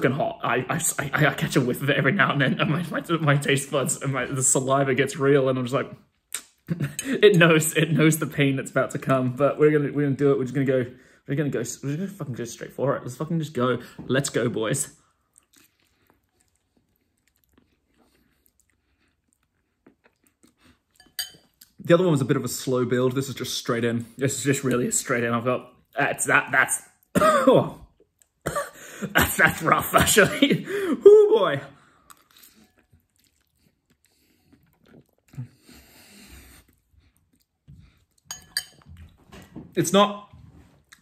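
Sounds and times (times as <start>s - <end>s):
person chewing noodles: 15.0s - 21.8s, 31.8s - 39.2s.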